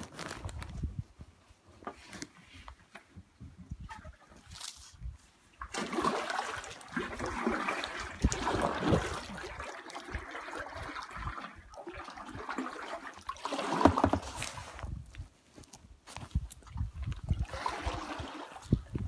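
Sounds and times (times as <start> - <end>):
water splashing around kayak: 5.5 - 15.0, 16.6 - 19.0.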